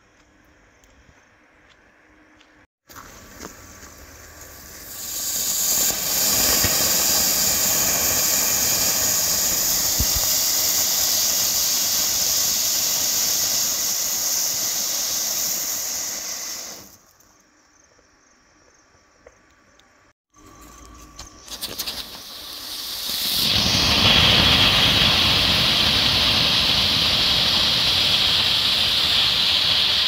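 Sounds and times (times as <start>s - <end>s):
firework fountain hissing: 2.9s - 17.1s, 21.4s - 30.0s.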